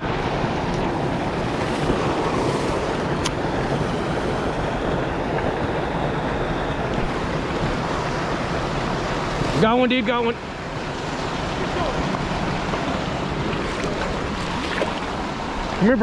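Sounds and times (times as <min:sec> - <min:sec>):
river rapids rushing: 0:00.0 - 0:16.0
wind buffeting microphone: 0:00.0 - 0:16.0.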